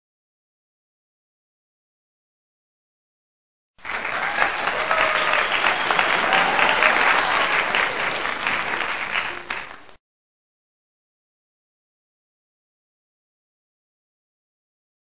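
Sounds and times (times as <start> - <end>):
crowd applause: 3.8 - 10.0.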